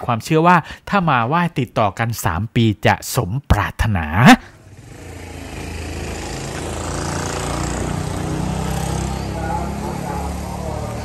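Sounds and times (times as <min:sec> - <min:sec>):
small motorcycle engine running: 0:04.6 - 0:11.0.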